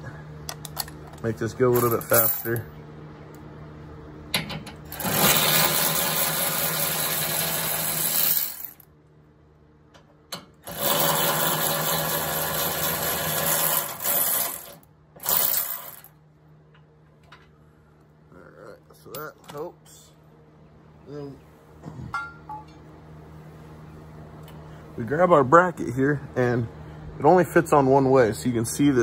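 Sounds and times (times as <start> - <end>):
electric ratchet running: 4.9 - 8.8, 10.6 - 16.1.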